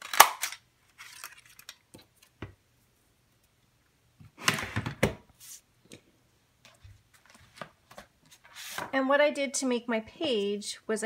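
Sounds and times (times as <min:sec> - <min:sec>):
paper rustling: 0:06.7 - 0:08.9.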